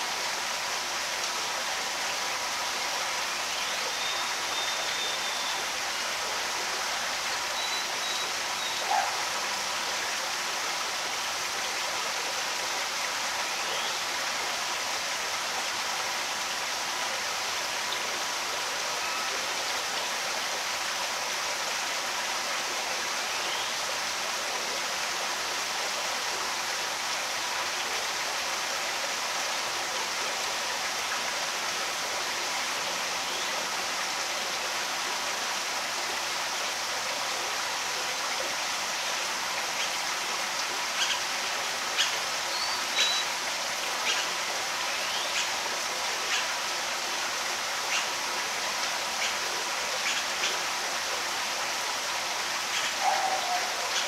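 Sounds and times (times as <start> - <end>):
steady outdoor rushing hiss: 0.0 - 54.0
faint high chirps: 7.6 - 8.9.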